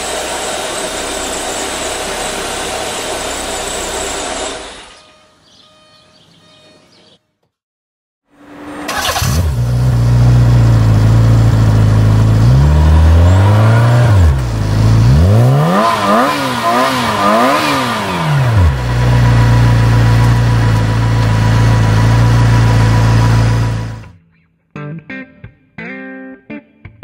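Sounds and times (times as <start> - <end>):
car engine idling and revving: 0.0 - 5.0, 8.4 - 24.1.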